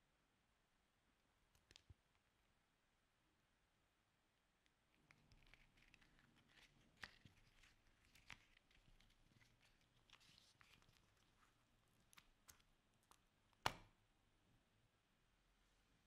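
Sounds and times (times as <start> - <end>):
plastic film crinkling: 5.1 - 13.2.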